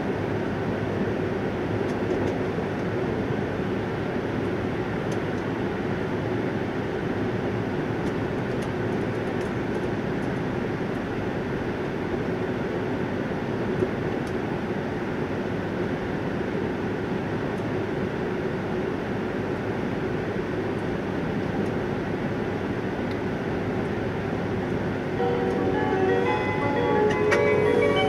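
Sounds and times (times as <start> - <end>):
train running rumble and hiss: 0.0 - 28.0.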